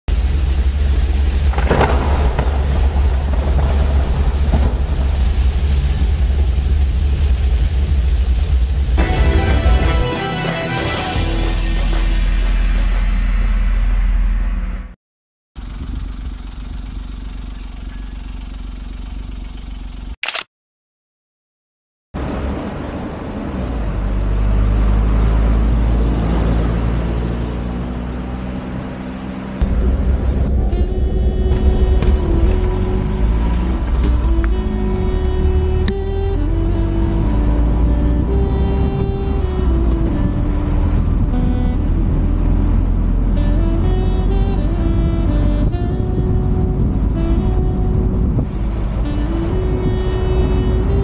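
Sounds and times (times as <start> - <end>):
deep rumble of driving: 0.1 - 10.2, 15.6 - 20.2, 22.2 - 51.0
heavy rain on vehicle: 0.1 - 11.1, 29.6 - 42.5.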